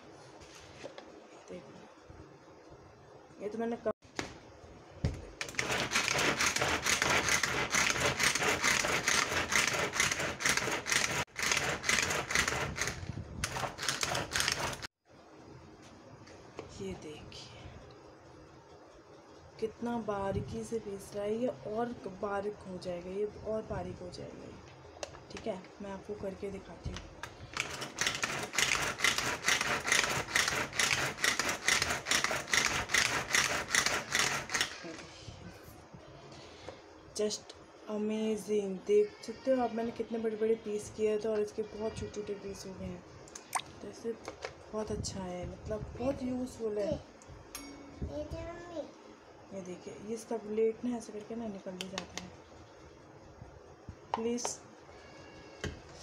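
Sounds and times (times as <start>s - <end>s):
blades spinning in plastic bowl: 5.4s - 14.9s, 27.6s - 34.8s
pull-cord chopper pulled by hand: 5.5s - 14.9s.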